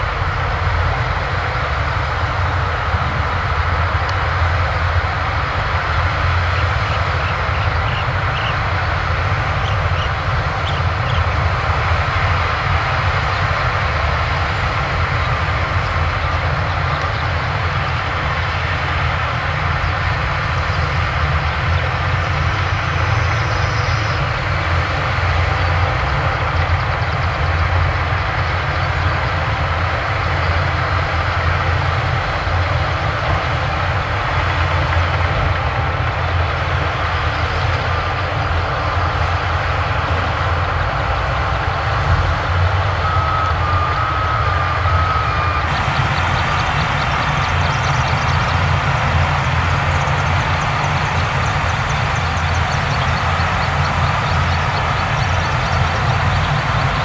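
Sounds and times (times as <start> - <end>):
heavy diesel engines running: 0.0 - 57.0
reversing alarm beeping: 42.0 - 57.0.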